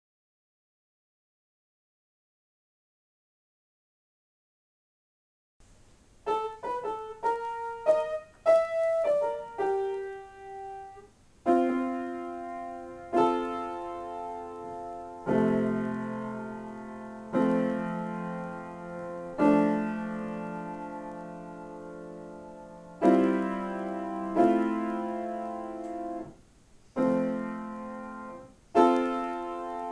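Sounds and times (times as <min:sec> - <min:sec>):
grand piano playing: 0:06.2 - 0:26.4, 0:27.0 - 0:29.9.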